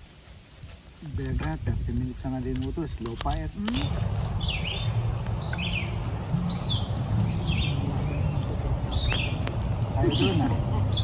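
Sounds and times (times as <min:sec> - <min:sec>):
songbird calling: 0:03.6 - 0:11.0
low steady rumble: 0:03.7 - 0:11.0.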